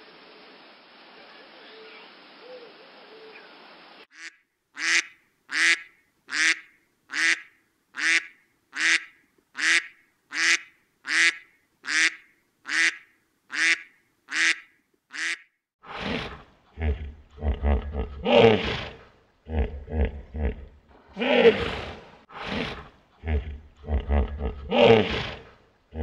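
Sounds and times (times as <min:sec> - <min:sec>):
steady hiss: 0:00.0 - 0:04.1
animal harsh calls: 0:15.2 - 0:26.0.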